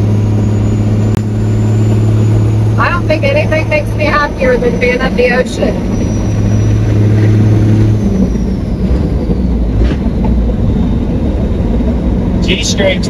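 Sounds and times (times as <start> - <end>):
truck engine droning: 0.0 - 13.0.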